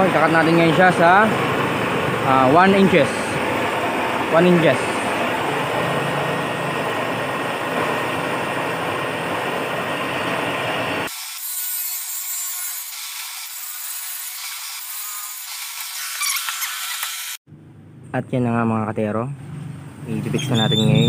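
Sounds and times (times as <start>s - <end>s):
table saw ripping board: 11.1s - 17.4s.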